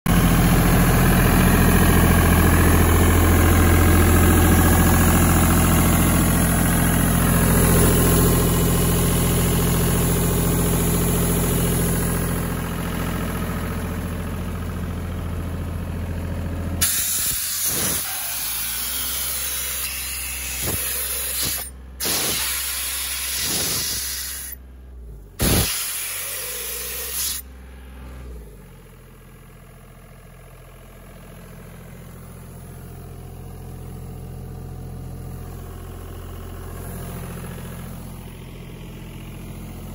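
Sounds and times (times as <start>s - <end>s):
air compressor diesel engine running: 0.1s - 39.9s
strong hiss: 25.4s - 27.4s.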